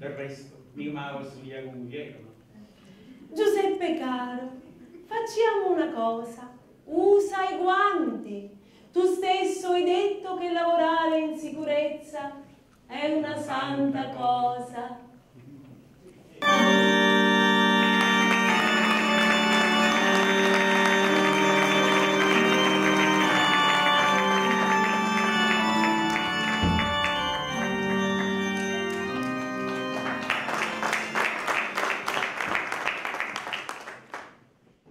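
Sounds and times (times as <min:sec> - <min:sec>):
organ playing held chords: 0:16.4 - 0:32.4
audience applause: 0:16.4 - 0:34.4.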